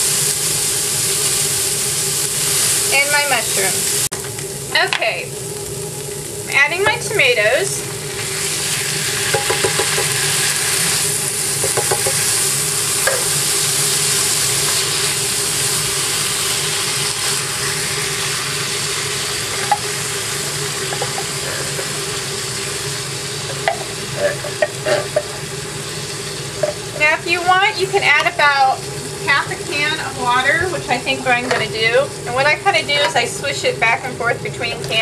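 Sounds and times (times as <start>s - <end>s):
kitchen exhaust fan humming: 0.0s - 35.0s
meat and tomatoes sizzling in skillet: 0.0s - 35.0s
spoon tapping a pan: 9.3s - 10.2s, 11.6s - 12.2s, 13.1s - 13.3s.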